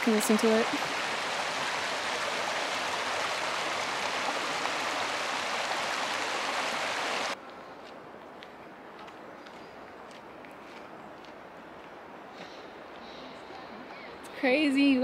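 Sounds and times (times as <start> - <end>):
creek rushing over rocks: 0.0 - 7.4.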